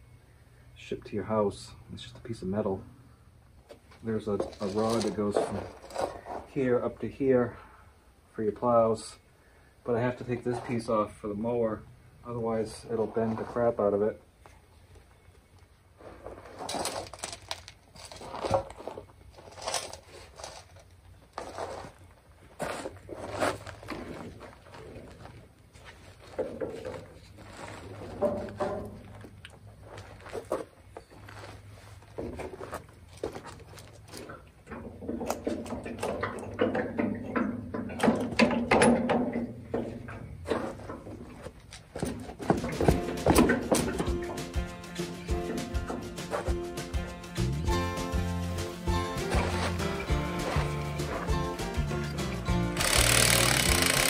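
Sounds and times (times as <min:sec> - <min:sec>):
rustling and handling noises: 0:03.6 - 0:06.7, 0:14.4 - 0:34.8
metal knocks and scrapes: 0:26.2 - 0:29.2, 0:34.2 - 0:52.5
footsteps crunching on gravel: 0:29.1 - 0:34.3, 0:48.8 - 0:52.6.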